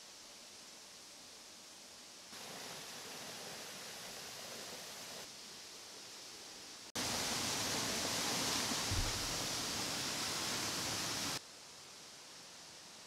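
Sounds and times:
waterfall rushing: 0:02.4 - 0:05.2, 0:07.0 - 0:11.4
low bump: 0:08.9 - 0:09.4.

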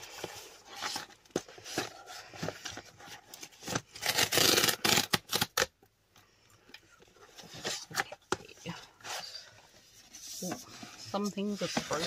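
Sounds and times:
cardboard tearing: 0:03.4 - 0:05.7.

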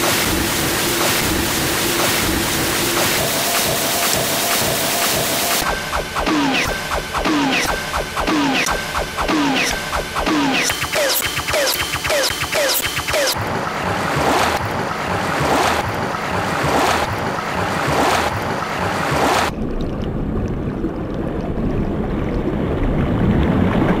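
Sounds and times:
low rumbling noise: 0:00.2 - 0:10.5, 0:13.4 - 0:24.0.

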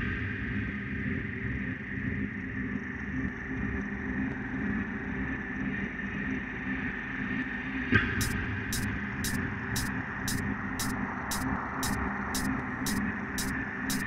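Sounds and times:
ambient electronic drone music: 0:08.2 - 0:14.0.

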